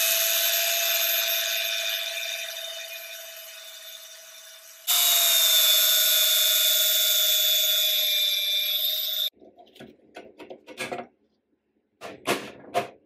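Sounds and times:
angle grinder cutting metal: 0:00.0 - 0:09.3.

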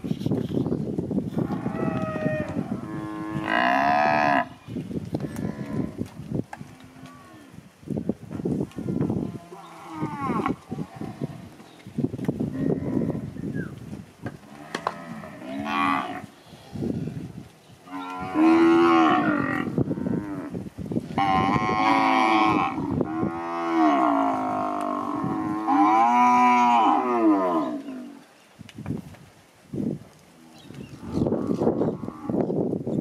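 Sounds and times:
hooves knocking in dirt: 0:04.7 - 0:07.3, 0:07.9 - 0:12.6, 0:13.6 - 0:16.4
cattle mooing: 0:14.5 - 0:16.3, 0:17.9 - 0:20.5, 0:21.2 - 0:28.2.

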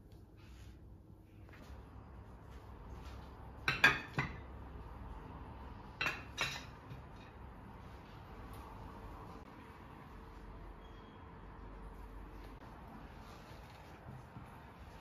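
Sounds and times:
dishes clinking on plates: 0:03.6 - 0:04.5, 0:06.0 - 0:07.4.

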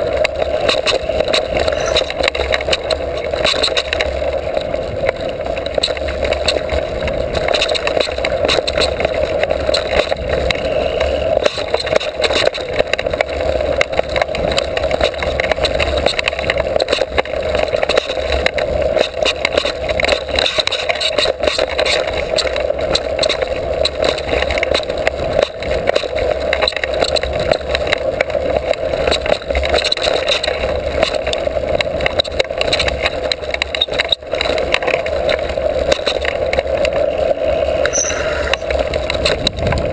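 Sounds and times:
bike rattles and knocks: 0:00.0 - 0:39.9
bike tyres rushing on dirt: 0:00.0 - 0:39.9.

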